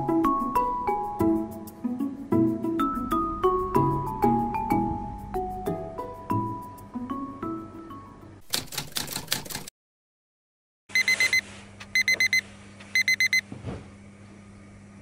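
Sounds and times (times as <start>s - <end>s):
mallet percussion tune: 0.0s - 7.8s
rapid clicking: 8.4s - 9.7s
digital alarm beeping: 11.0s - 11.4s, 12.0s - 12.4s, 13.0s - 13.4s.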